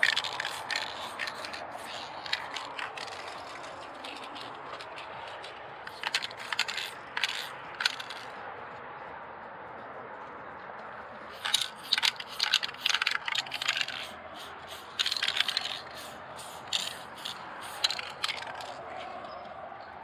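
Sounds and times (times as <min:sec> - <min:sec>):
spray-paint can hissing: 0:00.0 - 0:04.4, 0:05.9 - 0:08.2, 0:11.4 - 0:18.8.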